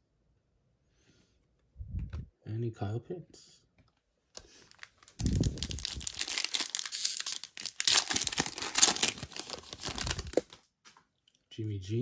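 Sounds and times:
foil wrapper crinkling and tearing: 4.6s - 10.6s.

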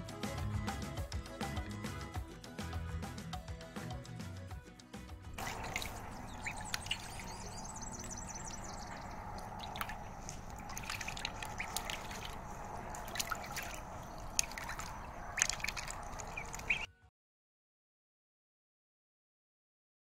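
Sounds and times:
duckling calls: 5.4s - 16.9s
ducklings splashing in water: 5.4s - 16.9s.

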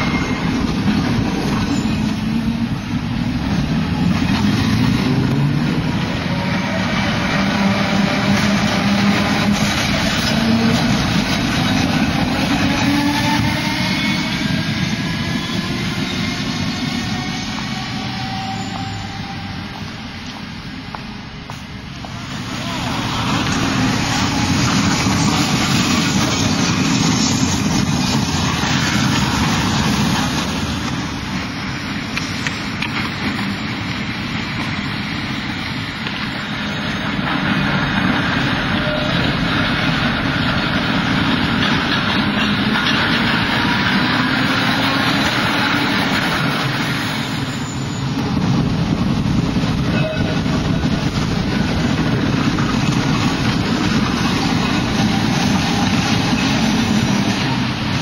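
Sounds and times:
tram wheels and motor rumble: 0.0s - 58.0s.

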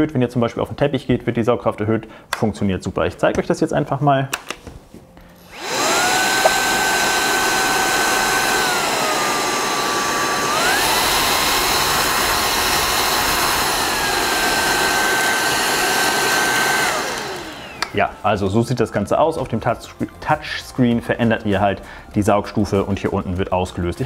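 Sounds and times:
vacuum cleaner motor whining: 5.4s - 18.5s.

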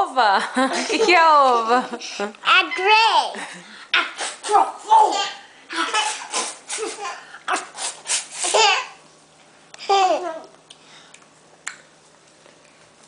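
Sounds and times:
toddler laughing: 8.4s - 9.0s, 9.8s - 10.5s.

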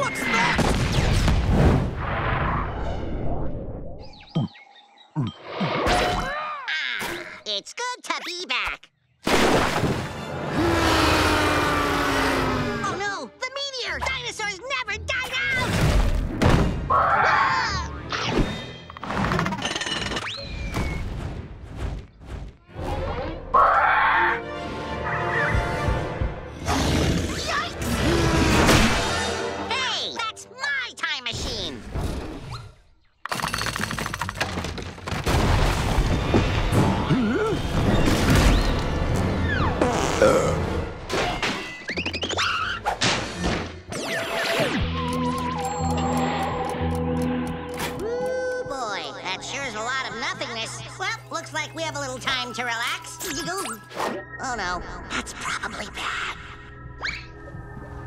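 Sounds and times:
cartoon soundtrack music: 10.3s - 19.5s, 22.6s - 31.9s, 36.5s - 58.0s.

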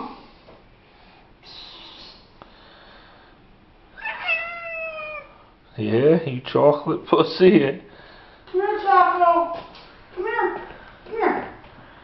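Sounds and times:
cat meowing: 4.0s - 5.4s.

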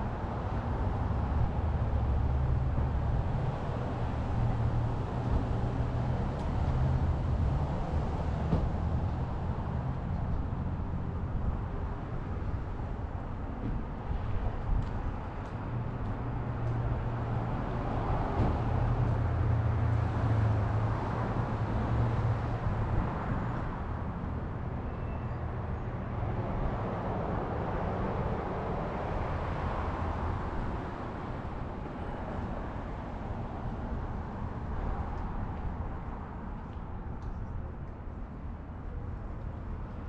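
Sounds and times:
cars passing: 0.0s - 24.8s, 25.4s - 40.0s.

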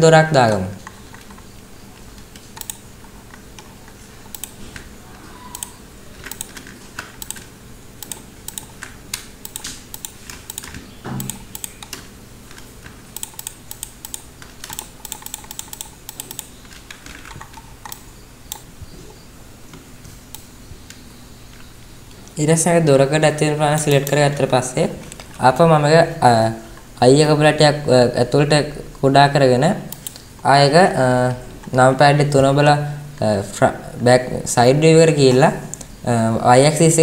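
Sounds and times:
faint low hum: 0.0s - 37.0s
keyboard clicking: 0.4s - 18.8s
computer mouse clicking: 0.8s - 18.8s, 20.3s - 22.4s, 23.7s - 24.3s, 25.0s - 25.4s, 29.9s - 30.5s, 31.3s - 31.8s.

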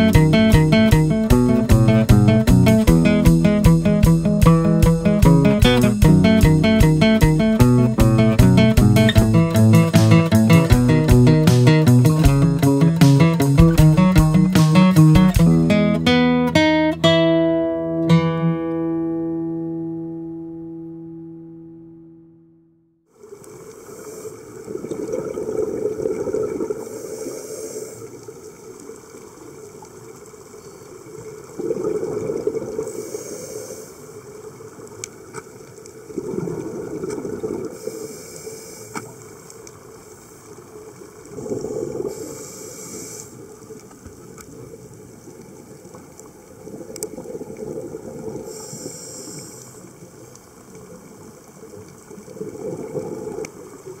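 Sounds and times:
exhaled bubbles underwater: 24.4s - 27.0s, 31.2s - 33.1s, 36.0s - 37.9s, 40.9s - 42.4s, 44.2s - 48.7s, 49.9s - 54.0s
regulator hiss: 26.8s - 28.2s, 32.9s - 34.2s, 37.8s - 39.2s, 42.1s - 43.6s, 48.4s - 50.0s
faint sharp clicks: 34.8s - 36.0s, 38.9s - 39.8s, 46.9s - 47.2s.

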